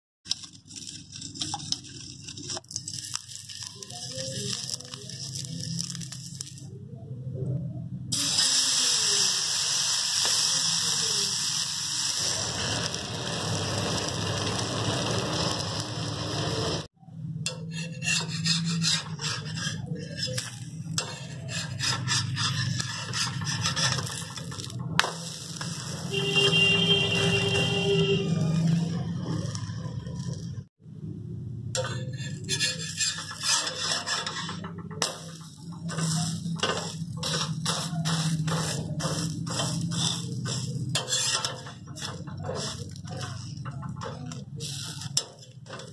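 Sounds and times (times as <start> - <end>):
batter sizzling on a griddle: 0.4 - 6.6, 8.2 - 16.9, 17.8 - 30.4, 31.8 - 45.9
spatula scraping a griddle: 0.4 - 6.6, 10.2 - 16.9, 17.5 - 30.3, 31.8 - 45.9
ladle scraping in a steel bowl: 17.5 - 25.9, 31.8 - 45.9.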